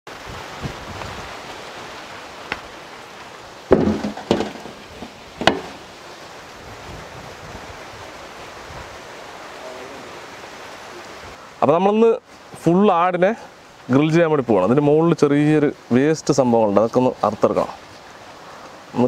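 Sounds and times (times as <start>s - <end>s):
steady hiss: 0.1s - 19.0s
loud knocks against metal platter: 3.7s - 5.8s.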